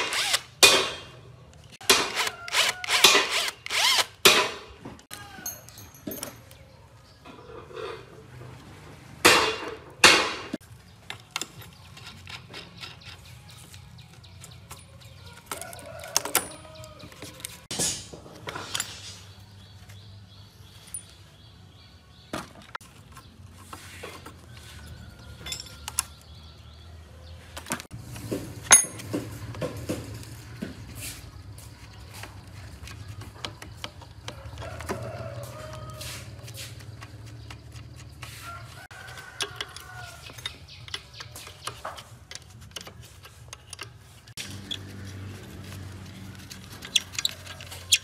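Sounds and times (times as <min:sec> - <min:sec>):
metal parts clinking and knocking: 0:05.4 - 0:06.7, 0:14.4 - 0:19.2, 0:25.3 - 0:26.2, 0:28.6 - 0:29.2, 0:39.1 - 0:44.8.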